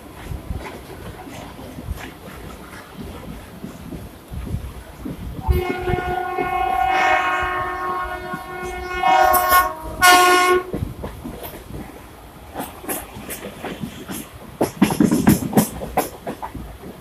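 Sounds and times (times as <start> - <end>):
train rumbling: 0.0 - 17.0
train horn blasts: 5.4 - 10.8.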